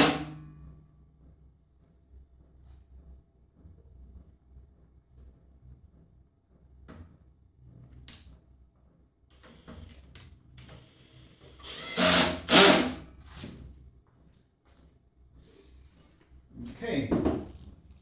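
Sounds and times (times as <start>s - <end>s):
drill motor whirring: 0.0s - 0.3s, 10.8s - 13.0s.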